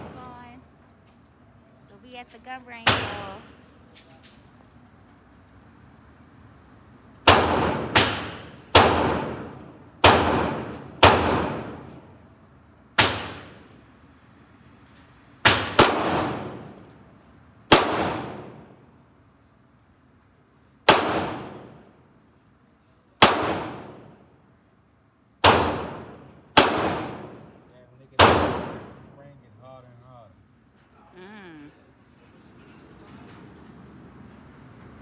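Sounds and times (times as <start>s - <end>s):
gunshots echoing indoors: 7.2s - 12.1s, 13.0s - 13.7s, 15.4s - 16.8s, 17.7s - 18.8s, 20.8s - 22.1s, 23.2s - 24.4s, 25.4s - 27.6s, 28.2s - 29.2s.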